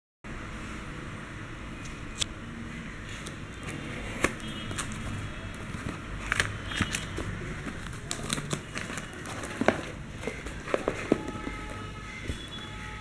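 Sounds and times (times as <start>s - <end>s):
cardboard and plastic rustling: 3.6s - 12.7s.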